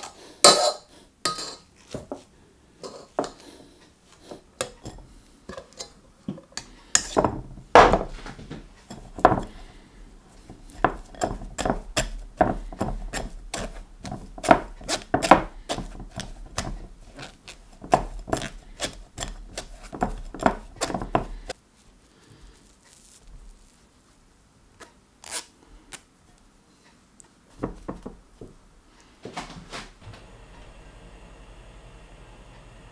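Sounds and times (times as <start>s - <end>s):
spatula scraping through metal sieve: 8.8s - 21.6s.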